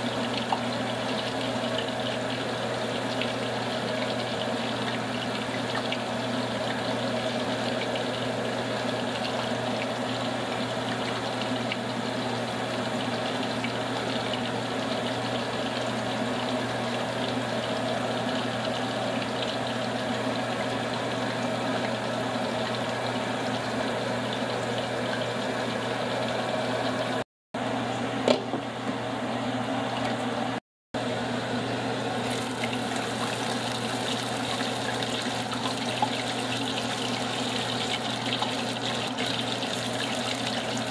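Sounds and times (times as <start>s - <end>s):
food deep-frying in oil: 0.0s - 27.2s, 31.0s - 40.9s
mechanical hum: 0.0s - 40.9s.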